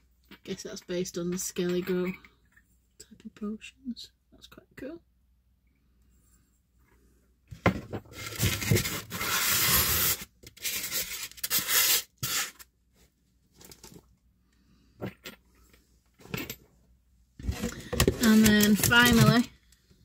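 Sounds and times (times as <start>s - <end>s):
packaging rustling and scraping: 8.0s - 12.7s, 13.5s - 14.1s, 17.4s - 19.5s.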